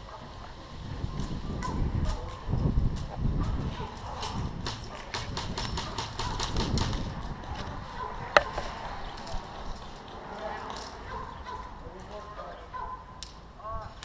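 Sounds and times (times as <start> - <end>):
low wind: 0.0 - 14.0
camera handling rumble: 4.7 - 8.8.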